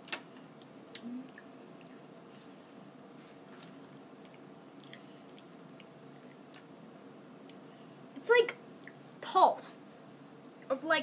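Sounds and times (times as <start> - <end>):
low room hum: 0.0 - 11.0
chewing and mouth sounds: 0.6 - 2.3, 3.2 - 6.8.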